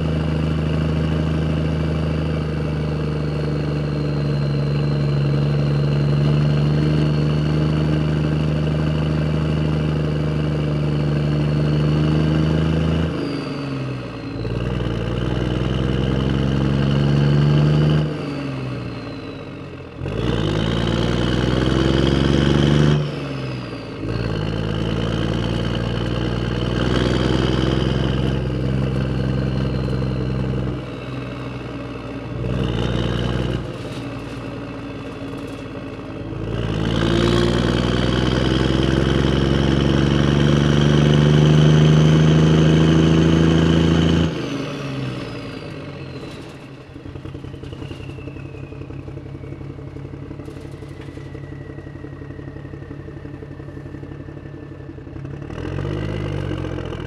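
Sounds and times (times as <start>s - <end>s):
truck engine revving: 0.0s - 57.0s
engine idling rattle: 23.6s - 40.1s, 44.7s - 57.0s.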